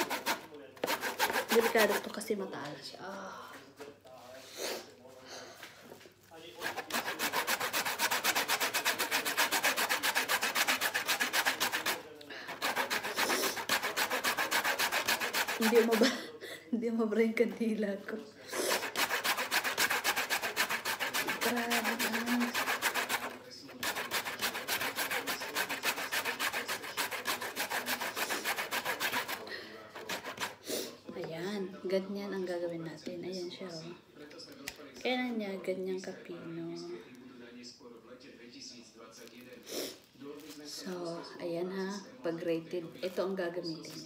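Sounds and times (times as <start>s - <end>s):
root scraping on metal grater: 0.0s - 2.2s, 6.6s - 16.1s, 18.5s - 30.6s.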